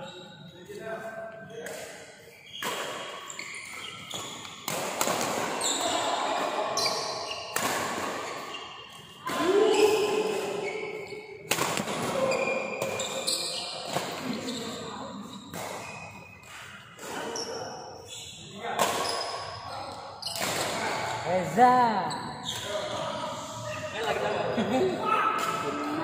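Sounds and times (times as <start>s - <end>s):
shoes squeaking on court: 2.2s - 4.7s, 5.6s - 11.4s, 12.2s - 20.4s
racket hitting shuttlecock: 3.8s - 5.6s, 7.5s - 8.5s.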